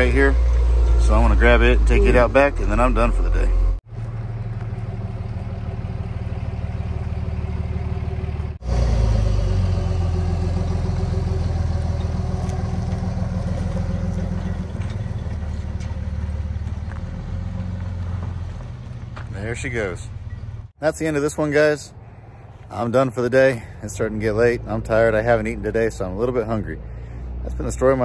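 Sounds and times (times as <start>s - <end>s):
wheel loader engine running: 0.0s - 20.7s.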